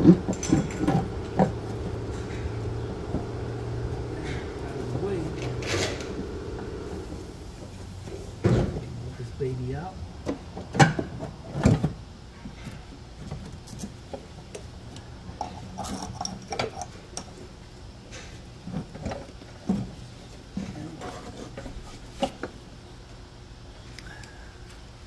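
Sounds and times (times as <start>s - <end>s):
brake booster knocking against hoses: 0.0s - 7.3s.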